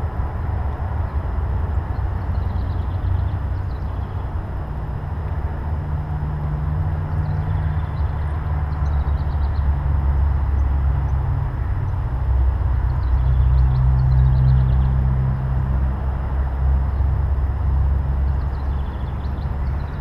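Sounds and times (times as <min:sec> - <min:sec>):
low outdoor rumble: 0:00.0 - 0:20.0
faint songbird chirps: 0:01.8 - 0:04.4, 0:07.1 - 0:09.8, 0:12.8 - 0:15.0, 0:18.1 - 0:20.0.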